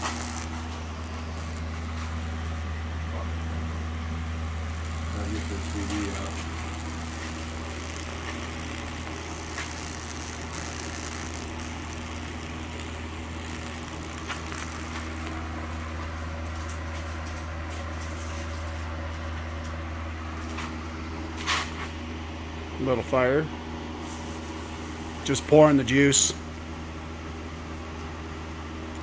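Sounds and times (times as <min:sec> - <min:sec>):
electric arc crackling: 0:00.0 - 0:18.9
transformer humming: 0:00.0 - 0:21.4.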